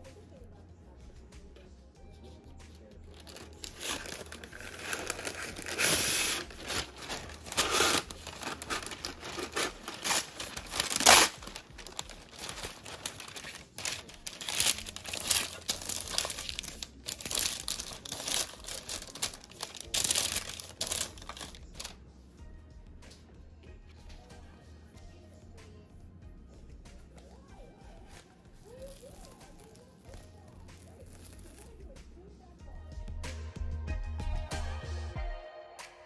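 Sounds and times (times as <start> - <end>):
parchment paper crinkling: 3.1 - 22.0, 28.6 - 31.8.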